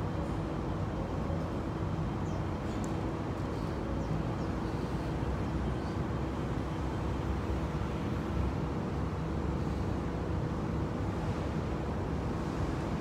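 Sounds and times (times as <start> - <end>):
faint continuous hum: 0.0 - 13.0.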